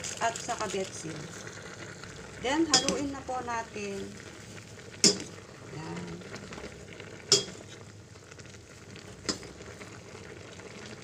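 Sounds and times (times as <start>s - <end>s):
stew sizzling faintly: 0.0s - 11.0s
metal ladle knocking on pot: 2.7s - 3.2s, 5.0s - 5.4s, 7.3s - 7.6s.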